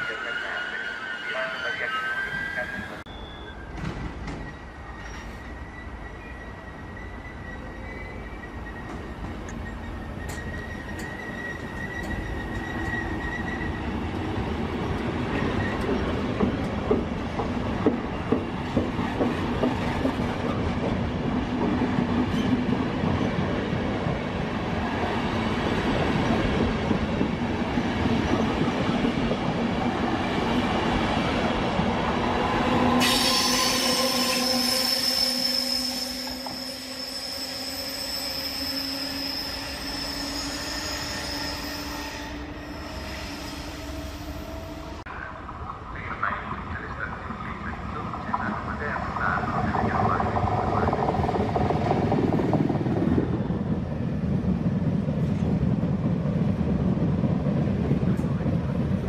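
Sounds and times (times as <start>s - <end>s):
train wheels squealing: 0.0s - 14.0s, 33.0s - 44.7s
train coaches rumbling past: 0.0s - 59.0s.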